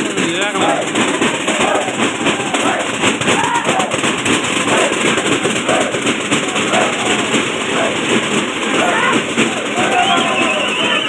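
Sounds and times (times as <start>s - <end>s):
frame drums beaten fast: 0.0s - 11.0s
voices calling or singing: 0.0s - 11.0s.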